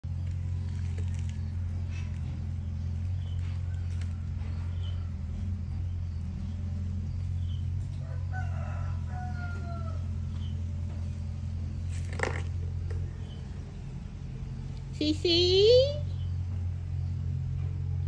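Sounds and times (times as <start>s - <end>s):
steady low hum: 0.0s - 18.0s
rooster crowing: 3.2s - 5.8s, 7.8s - 10.5s.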